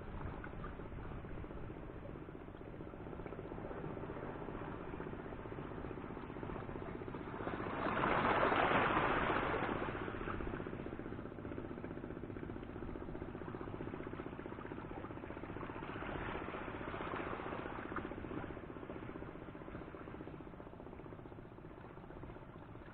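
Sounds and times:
seawater lapping and sloshing: 0.0s - 22.9s.

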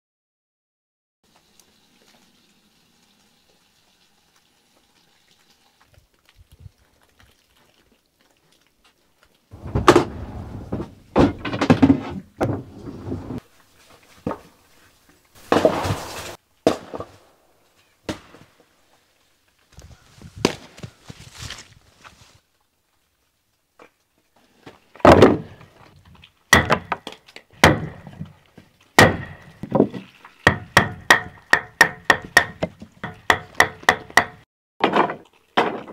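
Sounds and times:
axe striking log: 26.5s - 28.2s, 29.0s - 35.9s.

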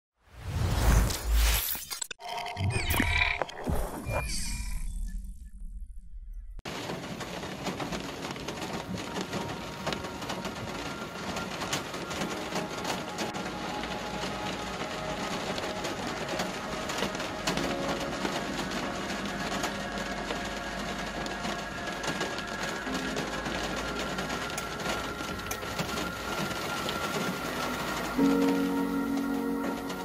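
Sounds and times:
rain on car windshield: 6.7s - 30.0s.

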